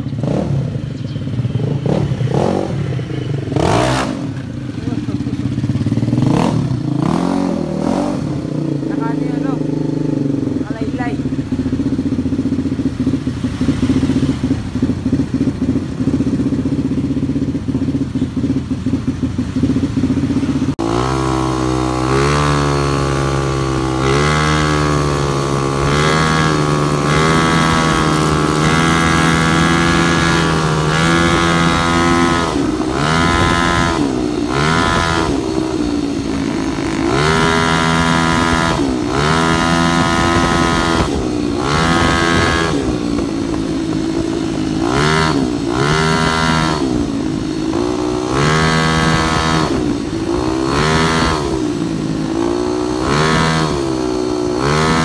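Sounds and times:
scooter engine revving: 0.0 - 55.0.

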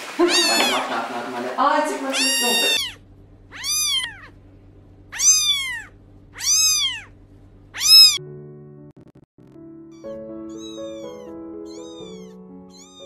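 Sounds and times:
kittens mewing: 0.2 - 0.9, 2.0 - 4.4, 5.1 - 8.2, 10.0 - 13.0
faint low hum: 0.6 - 8.2.

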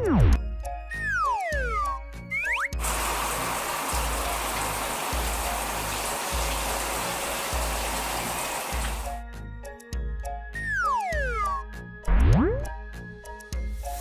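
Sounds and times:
water spraying from shower head: 2.8 - 9.2, 13.7 - 14.0.

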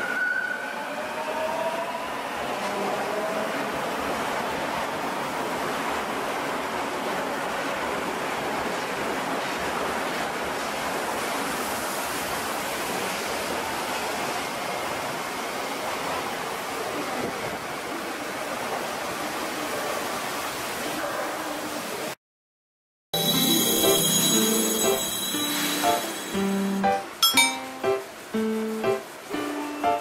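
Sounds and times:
subway train running on track: 0.0 - 22.1, 23.2 - 30.0.

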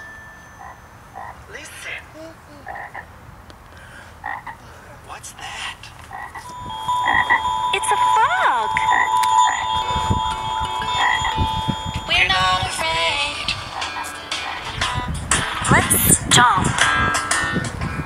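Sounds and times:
frog croaking: 0.6 - 3.1, 4.2 - 4.6, 6.1 - 7.4, 8.8 - 10.2, 10.9 - 11.4
steady tone: 6.5 - 15.9.

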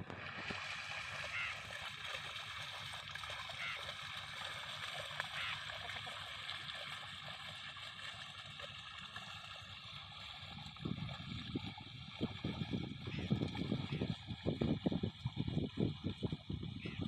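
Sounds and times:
muddy water sloshing and splashing: 0.0 - 17.0.

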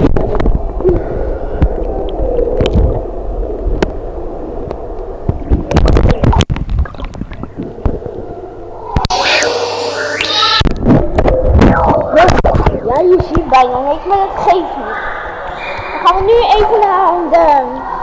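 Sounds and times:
underwater gurgling and sloshing: 0.0 - 18.0.

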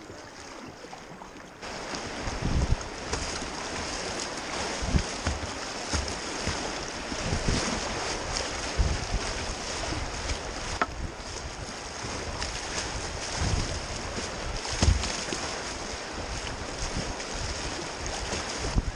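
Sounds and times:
splash thumps: 1.6 - 11.0, 12.0 - 17.2
whitewater rushing: 1.6 - 18.9
wind buffeting microphone: 1.6 - 18.9.

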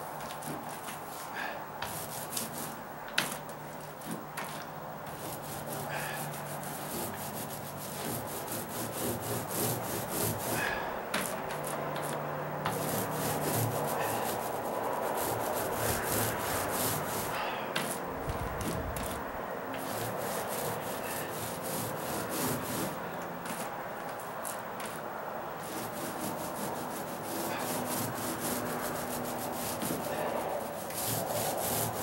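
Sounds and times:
paint roller rubbing on rough wood: 0.0 - 32.0.

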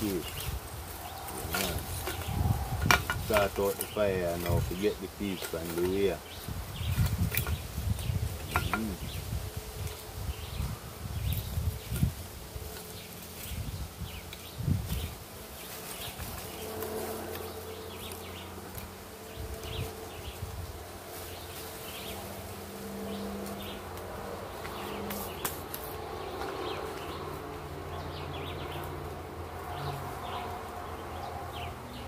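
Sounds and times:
charcoal lumps clinking: 1.3 - 6.2, 8.4 - 9.0
flying insect buzzing: 6.3 - 31.9.

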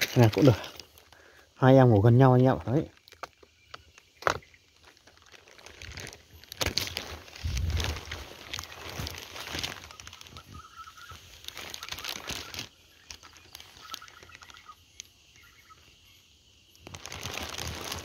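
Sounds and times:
leaves and plastic rustling: 0.0 - 18.0.

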